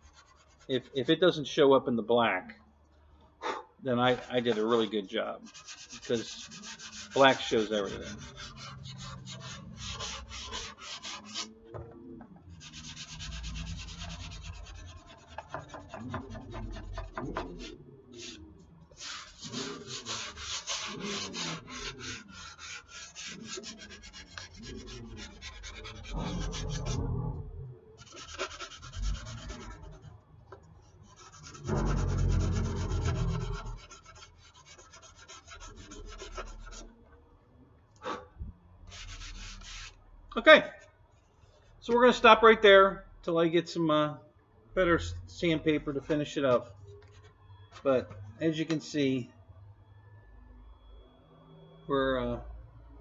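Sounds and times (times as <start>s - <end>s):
sandpaper rubbing on foam: 4.1s - 11.5s, 12.6s - 18.4s, 19.0s - 27.0s, 28.0s - 30.0s, 31.1s - 36.8s, 38.9s - 39.9s.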